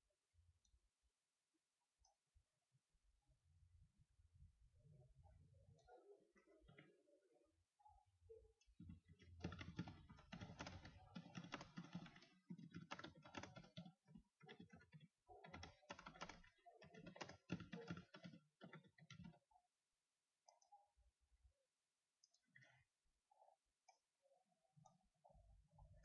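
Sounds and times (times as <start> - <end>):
faint keyboard typing: 8.5 - 19.7.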